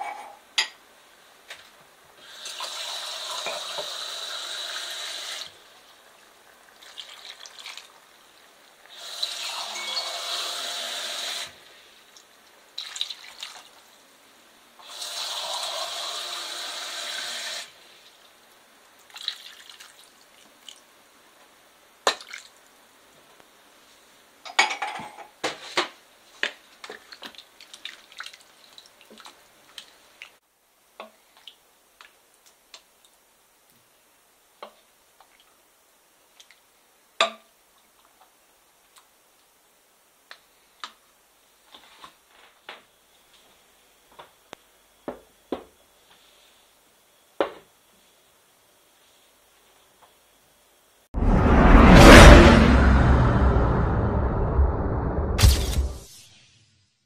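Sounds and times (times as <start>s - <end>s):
water pouring into pot: 6.6s - 7.9s, 12.8s - 13.7s, 19.1s - 20.4s.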